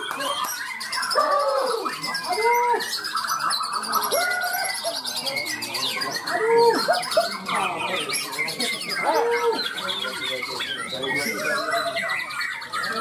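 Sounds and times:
bird whistling and chattering: 0:00.0 - 0:13.0
other songbirds singing: 0:00.0 - 0:13.0.

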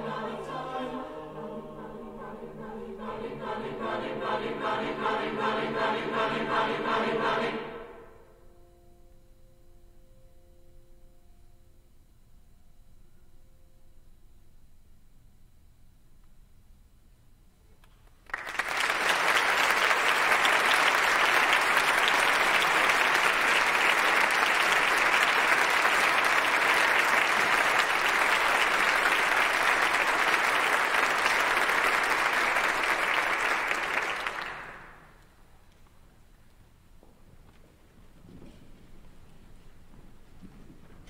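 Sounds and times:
audience applauding: 0:18.2 - 0:35.2.

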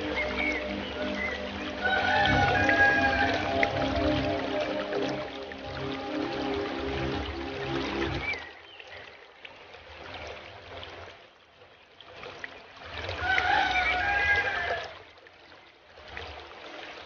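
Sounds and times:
wavering tones: 0:00.0 - 0:08.4
aquarium water trickling and bubbling: 0:00.0 - 0:17.0.

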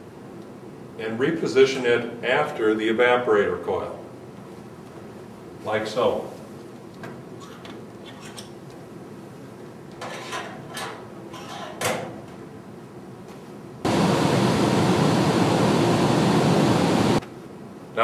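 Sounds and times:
blower air rushing: 0:13.8 - 0:17.2.

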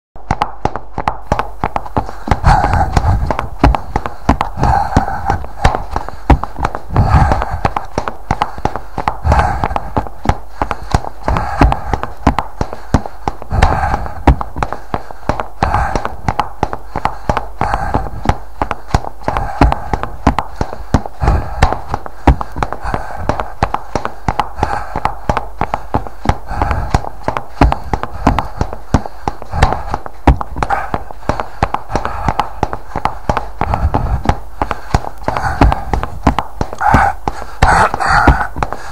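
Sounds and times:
person breathing heavily: 0:00.2 - 0:38.9
running footsteps: 0:00.2 - 0:38.9.

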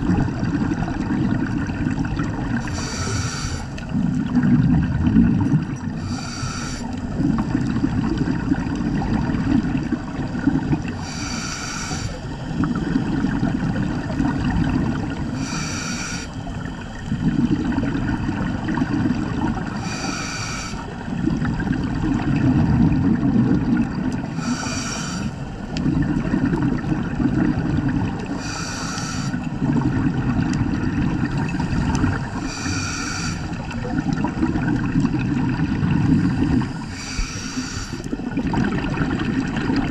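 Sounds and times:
exhaled bubbles rumbling: 0:00.0 - 0:39.9
regulator inhale hiss: 0:02.6 - 0:04.0, 0:06.0 - 0:07.3, 0:10.9 - 0:12.5, 0:15.2 - 0:17.1, 0:19.7 - 0:21.1, 0:24.3 - 0:25.7, 0:28.2 - 0:29.6, 0:31.2 - 0:33.8, 0:36.0 - 0:38.3.

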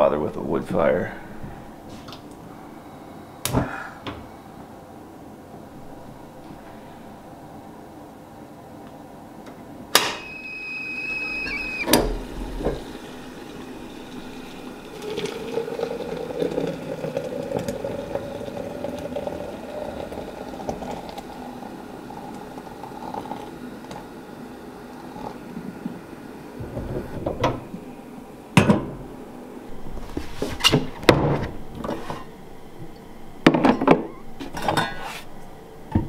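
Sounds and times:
stovetop kettle whistling: 0:09.9 - 0:25.4
hot water pouring into glass: 0:10.3 - 0:25.5.

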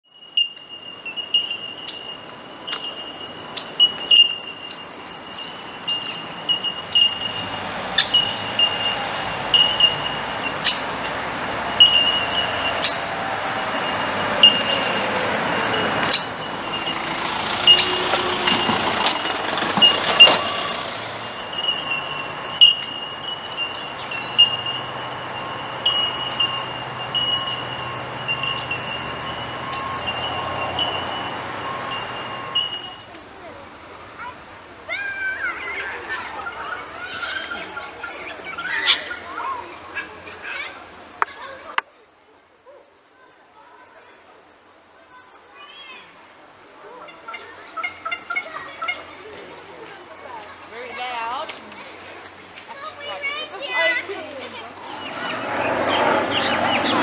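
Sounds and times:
high steady chirping: 0:00.0 - 0:33.1
vehicle passing: 0:01.1 - 0:41.8, 0:46.2 - 0:57.0.

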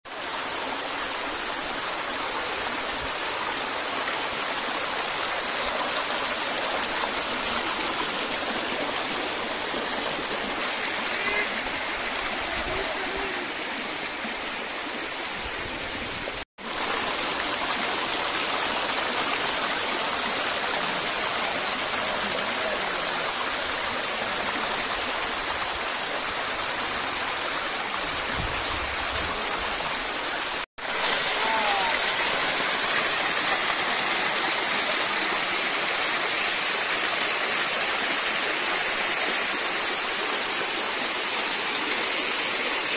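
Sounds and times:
waterfall splashing over rocks: 0:00.1 - 0:42.9.

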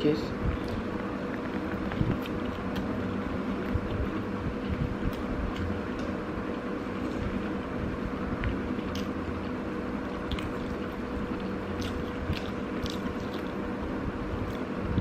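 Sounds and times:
chewing clicks: 0:00.6 - 0:03.0, 0:08.4 - 0:09.5, 0:10.2 - 0:13.6.

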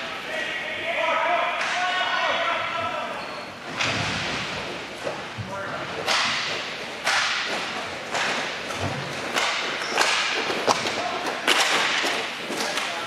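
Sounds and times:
skates scraping rink surface: 0:01.5 - 0:13.0
sticks clicking on puck: 0:06.0 - 0:13.0.

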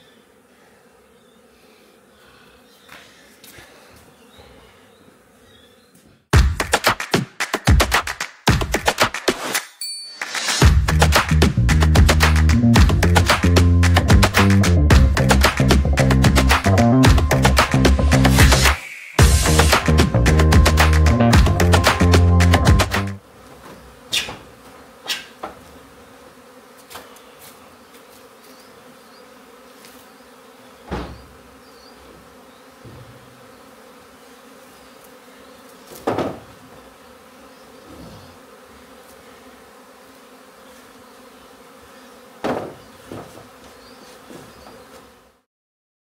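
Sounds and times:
swarm of bees humming: 0:00.0 - 0:06.3, 0:10.3 - 0:45.5
hive boxes and tools knocking: 0:30.8 - 0:31.4, 0:32.0 - 0:33.4, 0:35.9 - 0:36.6, 0:42.4 - 0:45.0.

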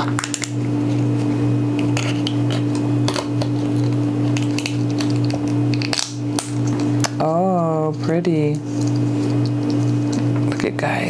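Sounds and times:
steady low hum: 0:00.0 - 0:11.0
oyster shell cracking open: 0:01.8 - 0:07.2.

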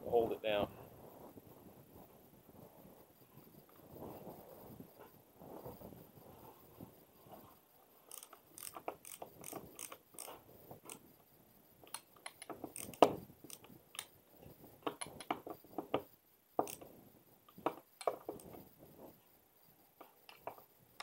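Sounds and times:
screwdriver ratchet clicks: 0:08.1 - 0:11.0, 0:11.9 - 0:14.1.

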